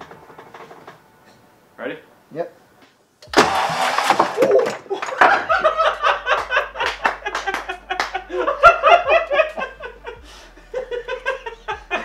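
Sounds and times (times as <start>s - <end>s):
people laughing: 4.4s - 12.0s.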